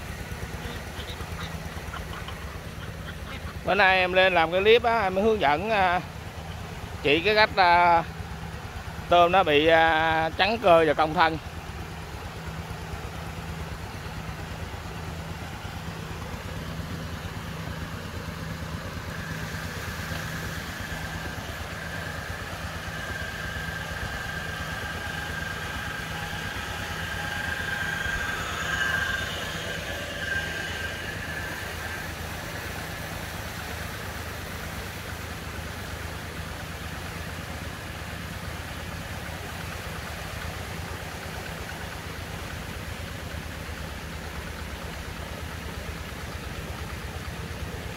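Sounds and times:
engine humming: 0.0 - 47.9
high whine: 0.0 - 47.9.

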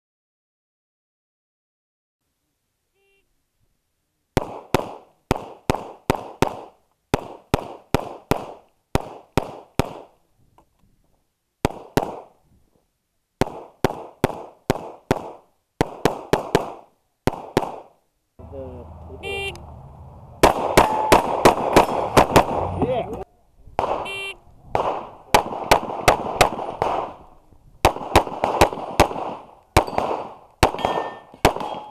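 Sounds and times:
pistol shots echoing: 20.4 - 22.7, 23.8 - 24.1, 24.7 - 31.9.

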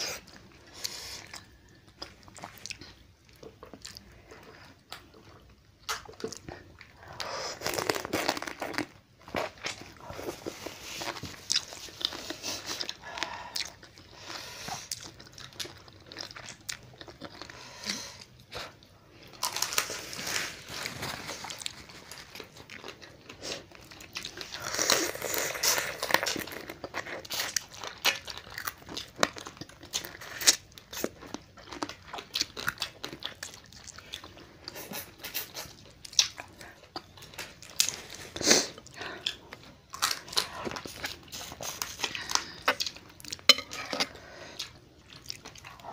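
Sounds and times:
chewing: 0.0 - 45.9
crab shells crunched while eating: 7.5 - 9.0.

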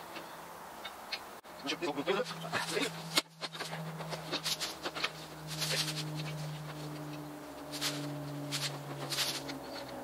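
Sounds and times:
steady low hum: 0.0 - 10.0
scuffs and rustles of handling: 2.2 - 9.5.

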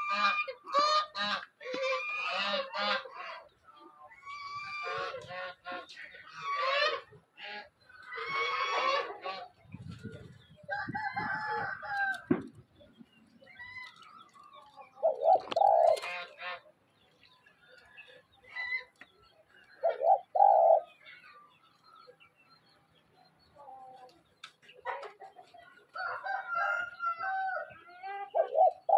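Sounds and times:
chickens calling: 0.0 - 28.9
doves cooing: 4.1 - 16.7, 17.6 - 21.6, 26.0 - 28.9.

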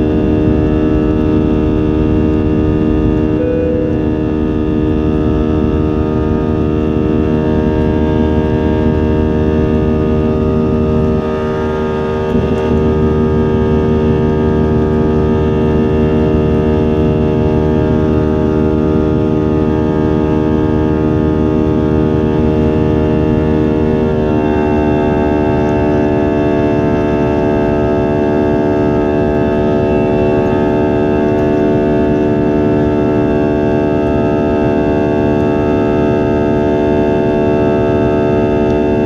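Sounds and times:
low rumble of air: 0.0 - 19.6
jet engines humming: 0.0 - 39.0
short high tone: 3.3 - 4.8.

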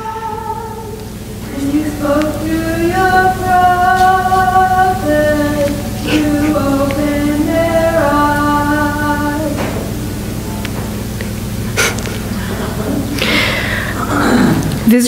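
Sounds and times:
person singing long notes: 0.0 - 10.0.

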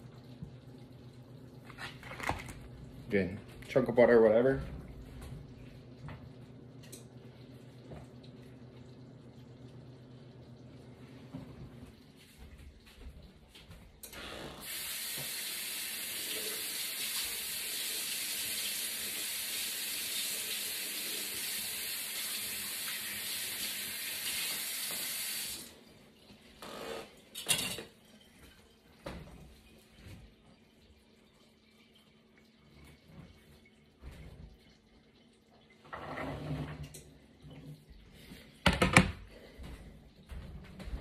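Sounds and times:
faucet running into sink: 14.1 - 36.2.

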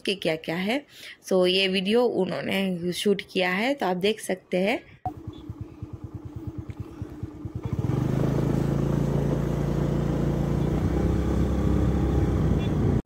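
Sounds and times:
vehicle engine droning: 5.1 - 13.0
rushing road noise: 6.7 - 13.0.

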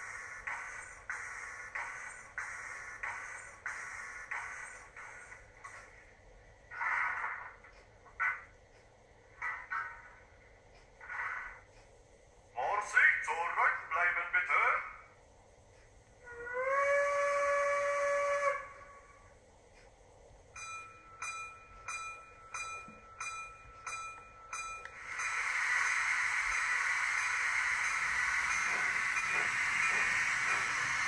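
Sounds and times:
steam locomotive whistle: 16.2 - 19.3, 25.0 - 31.0
steam hiss: 24.9 - 31.0.

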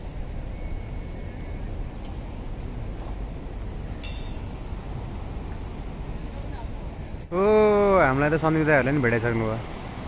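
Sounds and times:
low outdoor rumble: 0.0 - 10.0
bird chirping: 3.3 - 4.8.

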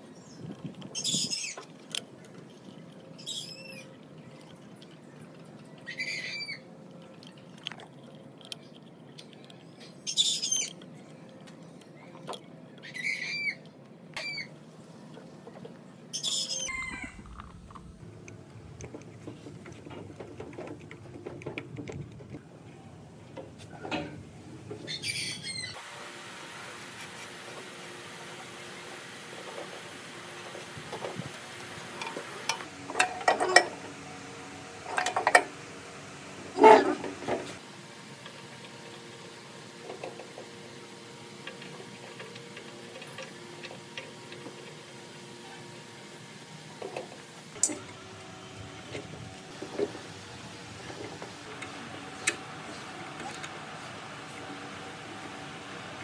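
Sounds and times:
bird chirping: 9.5 - 11.2.

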